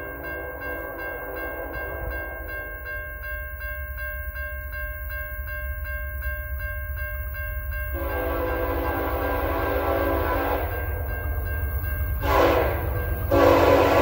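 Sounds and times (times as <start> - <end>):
level crossing warning bell: 0.0 - 14.0
train horn blast: 7.9 - 11.0, 12.2 - 14.0.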